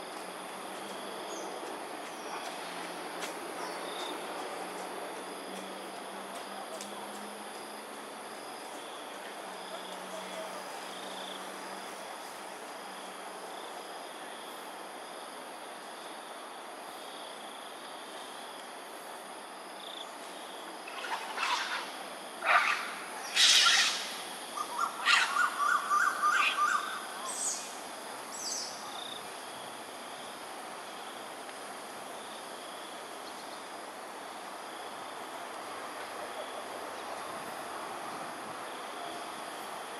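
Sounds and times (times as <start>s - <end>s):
steady outdoor hiss: 0.0s - 39.9s
animal sharp cries: 22.4s - 26.9s.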